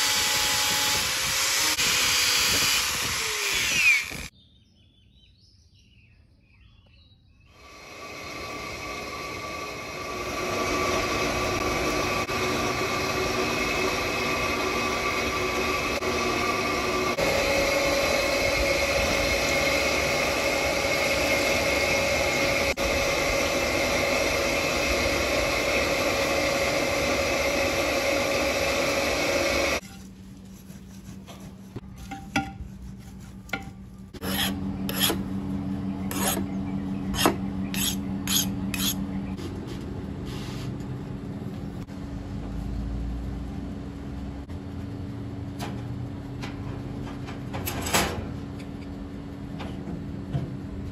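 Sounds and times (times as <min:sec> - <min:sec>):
file rasping on steel blade: 0:32.1 - 0:35.2, 0:36.1 - 0:36.5, 0:37.1 - 0:39.0.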